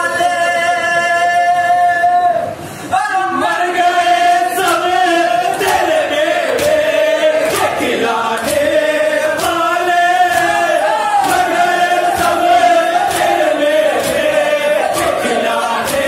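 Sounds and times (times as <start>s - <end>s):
crowd of men chanting a lament: 3.1s - 16.0s
rhythmic chest-beating slaps: 4.2s - 16.0s.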